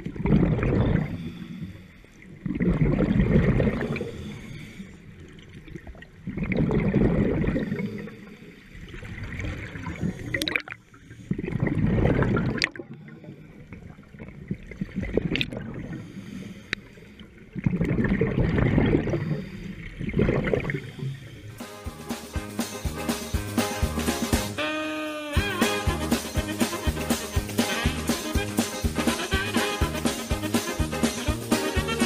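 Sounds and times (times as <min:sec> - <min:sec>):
exhaled bubbles gurgling underwater: 0:00.0 - 0:21.6.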